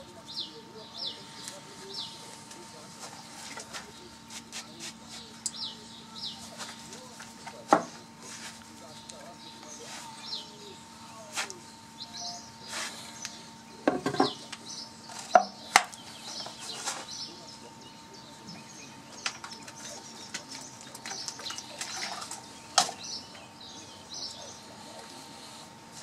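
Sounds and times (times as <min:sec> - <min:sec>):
birds chirping faintly: 0:00.0 - 0:26.0
faint steady hum: 0:00.0 - 0:26.0
knocks on wooden workbench: 0:13.9 - 0:14.4.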